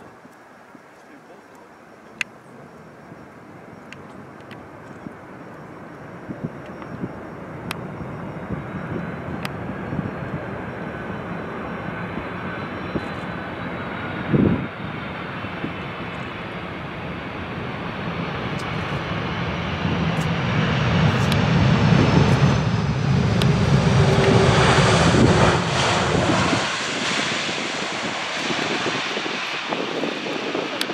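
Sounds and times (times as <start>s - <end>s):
jet engines running: 2.4s - 30.9s
jet reverse thrust rumbling: 7.0s - 30.9s.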